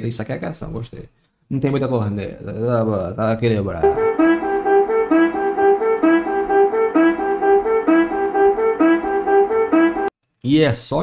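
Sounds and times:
melody of short repeated notes: 3.8 - 10.1.

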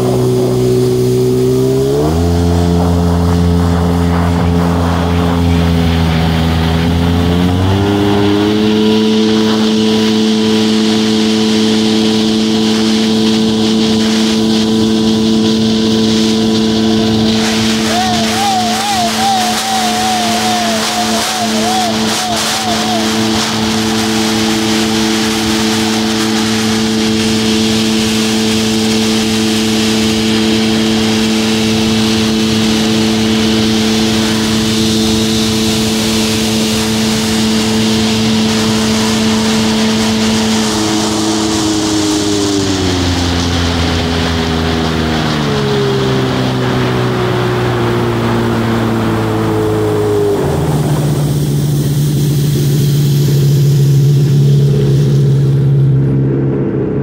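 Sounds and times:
jet ski engine running: 0.0 - 57.0
rushing hiss: 7.6 - 44.8.

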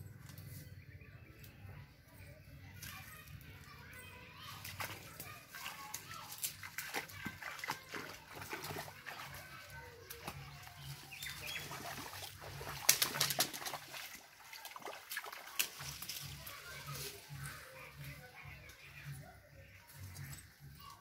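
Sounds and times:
bare feet splashing in water: 4.4 - 18.2.

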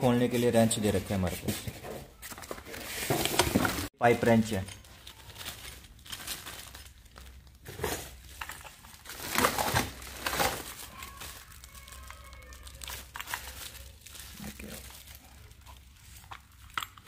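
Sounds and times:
plastic packaging crinkling: 3.8 - 17.0.

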